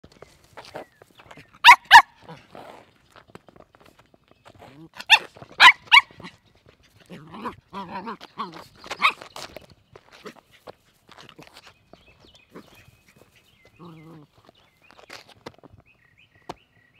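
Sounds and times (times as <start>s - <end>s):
puppy yipping: 1.6s - 2.2s, 5.0s - 6.3s, 7.8s - 9.2s.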